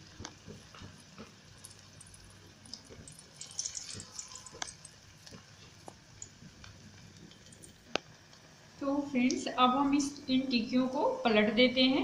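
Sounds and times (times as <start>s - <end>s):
patties sizzling in hot oil: 0.0s - 8.8s.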